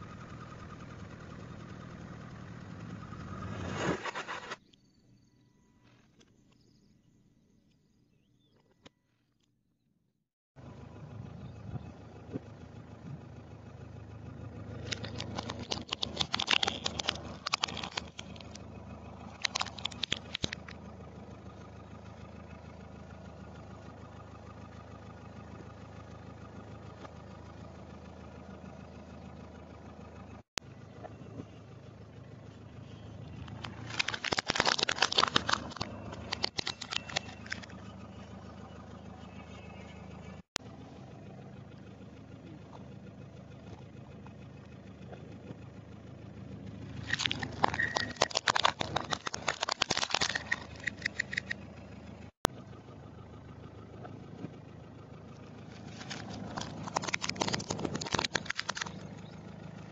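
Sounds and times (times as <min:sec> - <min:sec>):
car engine idling: 0:00.0 - 0:03.6, 0:10.6 - 0:59.9
tyre crushing plastic toys: 0:33.6 - 0:37.6, 0:47.1 - 0:51.5, 0:55.8 - 0:59.0.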